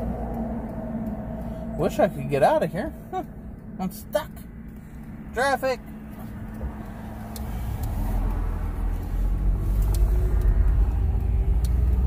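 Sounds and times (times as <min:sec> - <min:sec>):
car engine: 0:00.0 - 0:12.0
road rumble inside car: 0:00.0 - 0:12.0.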